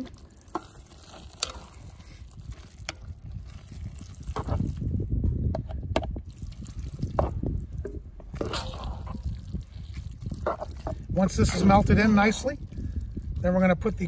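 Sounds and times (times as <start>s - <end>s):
wet squelchy stirring: 0.0s - 5.1s, 6.2s - 14.0s.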